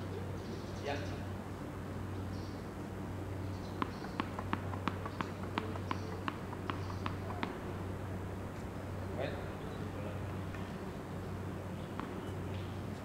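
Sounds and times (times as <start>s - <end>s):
steady low hum: 0.0s - 13.0s
tennis ball bouncing: 3.7s - 8.7s, 11.8s - 12.8s.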